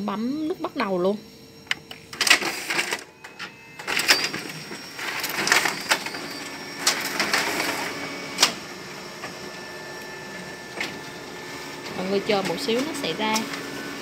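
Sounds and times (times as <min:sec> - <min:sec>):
copier mechanical whir: 0:00.0 - 0:14.0
copier clicks and clacks: 0:01.7 - 0:09.5, 0:10.3 - 0:11.2, 0:11.8 - 0:13.8.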